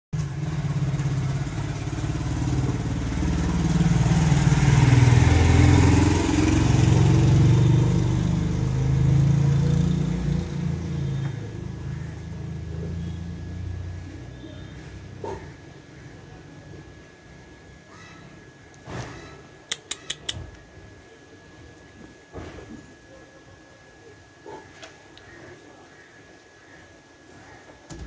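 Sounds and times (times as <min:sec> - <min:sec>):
vehicle engine rumbling: 0:00.2 - 0:15.9.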